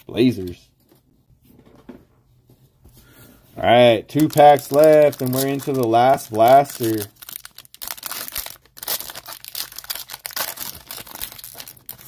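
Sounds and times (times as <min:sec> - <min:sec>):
foil wrapper tearing and crinkling: 0:04.1 - 0:12.0.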